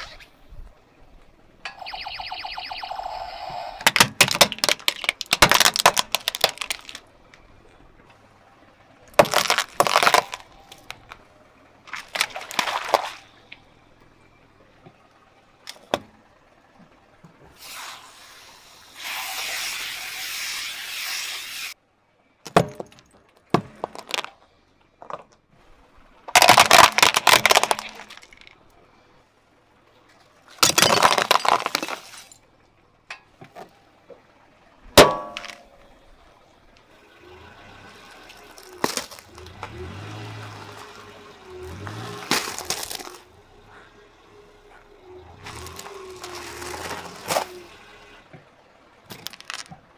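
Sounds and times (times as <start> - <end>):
sharp crack: 1.6 - 7.5, 9.1 - 11.3, 26.3 - 28.6, 41.8 - 44.0
tyre crushing glass and ceramic: 3.8 - 7.5, 9.1 - 11.2, 11.9 - 13.3, 22.4 - 24.4, 26.3 - 28.6, 30.5 - 32.5, 35.0 - 35.7, 38.2 - 39.8, 41.6 - 43.9, 44.8 - 47.7, 49.1 - 49.8.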